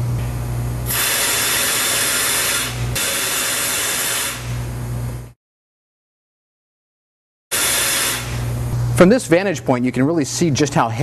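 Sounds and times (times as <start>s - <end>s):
steady low hum: 7.5s - 11.0s.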